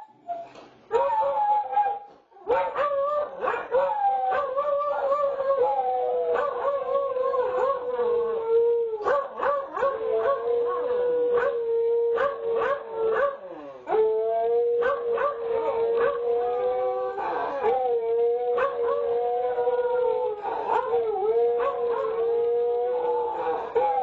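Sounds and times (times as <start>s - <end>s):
dogs howling: 0.9s - 24.0s.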